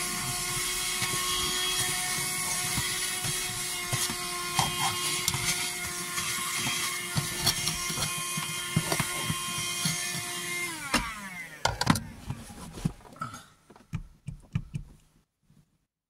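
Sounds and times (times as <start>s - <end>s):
vacuum cleaner motor running: 0.0s - 12.5s.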